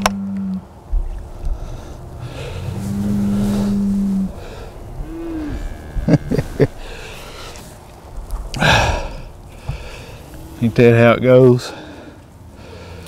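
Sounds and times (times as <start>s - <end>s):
cow mooing: 0.0s - 0.7s, 2.1s - 7.6s, 9.9s - 11.2s.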